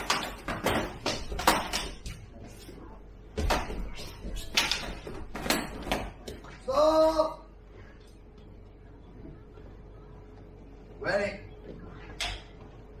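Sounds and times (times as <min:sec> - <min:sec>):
fighting sticks knocking: 0:00.0 - 0:02.3, 0:03.4 - 0:06.5.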